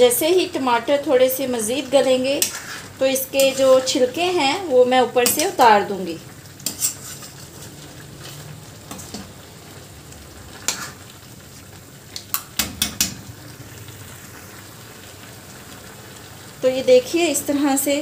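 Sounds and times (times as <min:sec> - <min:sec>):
food sizzling in a pan: 0:00.0 - 0:18.0
metal spoon clinking against pan: 0:06.6 - 0:07.4.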